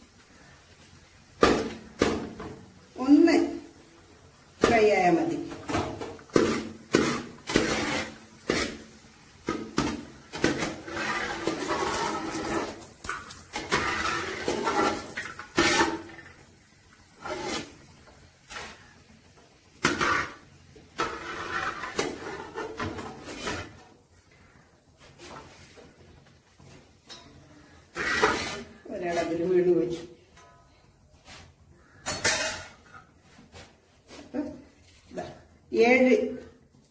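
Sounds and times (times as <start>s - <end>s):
frying sizzle: 0.0s - 24.6s
metal skimmer scraping pan: 5.7s - 8.9s, 9.5s - 16.4s, 17.2s - 18.9s, 19.8s - 23.8s, 27.9s - 29.4s.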